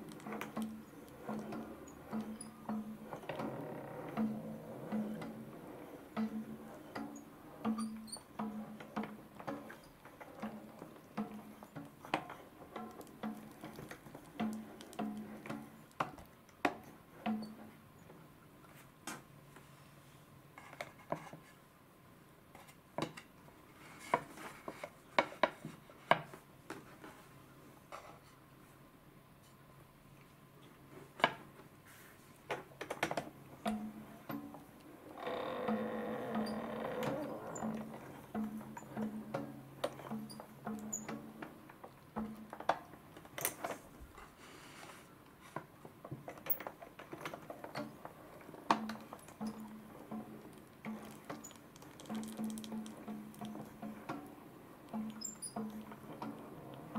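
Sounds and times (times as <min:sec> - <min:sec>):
faint rubbing: 0:43.8 - 0:45.6.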